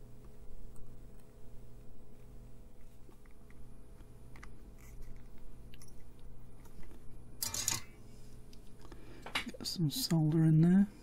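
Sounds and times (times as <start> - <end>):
steady low hum: 0.0 - 11.0
small clicks and crackles: 0.2 - 7.6.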